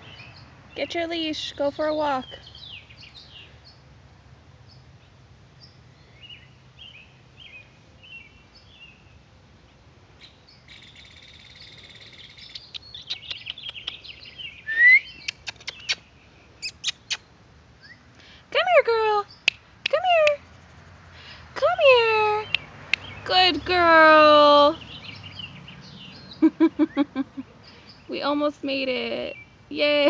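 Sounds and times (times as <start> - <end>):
songbirds chirping: 0.0 - 30.0
sharp clicks: 12.5 - 14.1.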